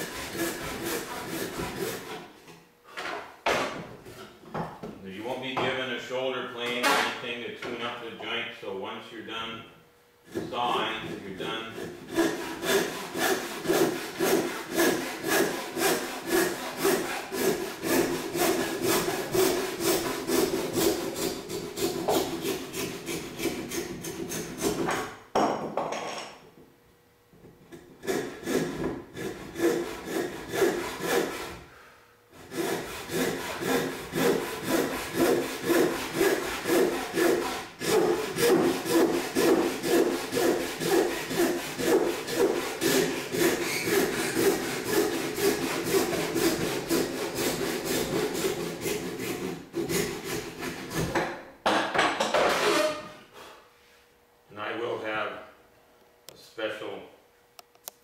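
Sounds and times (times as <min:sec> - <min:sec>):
hand saw cutting wood: 0:00.0 - 0:02.3, 0:10.3 - 0:25.1, 0:27.7 - 0:31.7, 0:32.3 - 0:51.4, 0:52.3 - 0:53.1.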